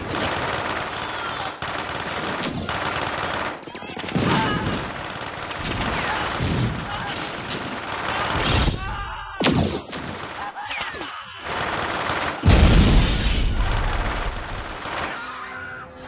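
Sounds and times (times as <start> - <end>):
sci-fi laser gunfire: 11.6 - 15.2
loud deep explosion: 12.5 - 14.4.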